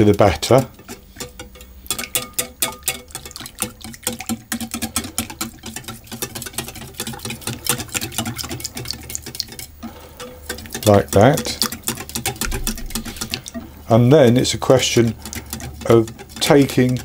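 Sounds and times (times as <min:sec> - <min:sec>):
wet slapping of batter: 0:00.0 - 0:17.0
whisk clicking against glass bowl: 0:00.0 - 0:17.0.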